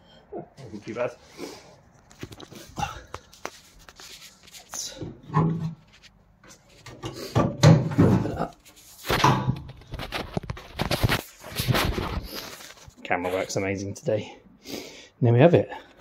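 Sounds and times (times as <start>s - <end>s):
metal clunks and scrapes: 5.0s - 10.4s.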